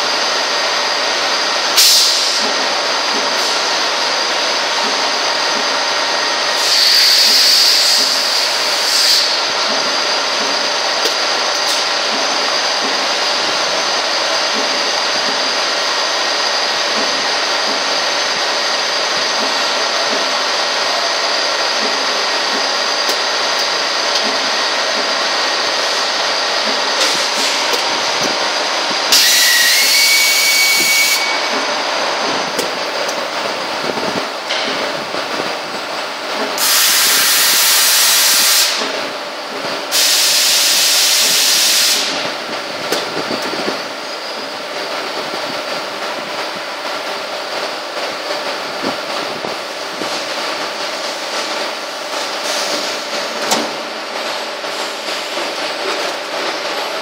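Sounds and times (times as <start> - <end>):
machine whines: 0.0 - 35.8
machinery mechanical drone: 0.0 - 57.0
loud bursts of hissing air: 1.7 - 2.6, 5.3 - 9.6, 24.7 - 31.8, 36.5 - 39.0, 39.8 - 42.5, 51.0 - 53.9.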